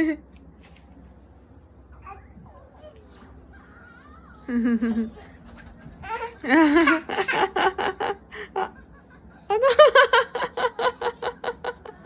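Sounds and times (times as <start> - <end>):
toddler laughing: 4.5 - 8.0.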